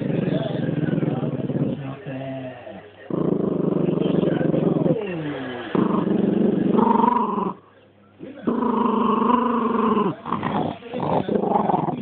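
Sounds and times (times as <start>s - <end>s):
dog growling: 0.0s - 2.0s, 3.1s - 7.6s, 8.3s - 12.0s.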